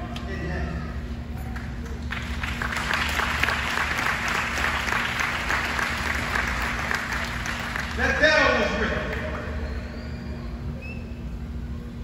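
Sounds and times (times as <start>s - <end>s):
audience applauding in a hall: 1.6s - 9.4s.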